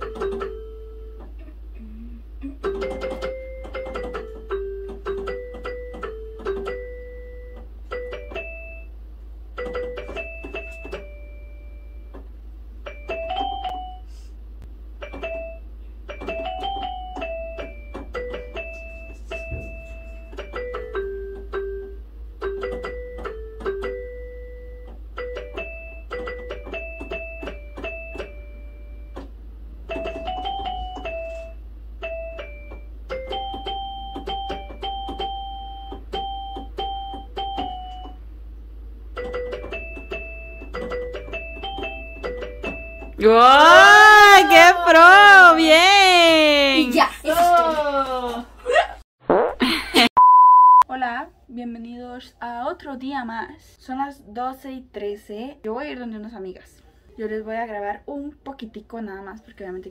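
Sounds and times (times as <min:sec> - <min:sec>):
electronic keyboard melody: 0:02.6 - 0:08.9, 0:09.6 - 0:12.1, 0:15.0 - 0:29.2, 0:29.9 - 0:38.2, 0:39.2 - 0:43.2.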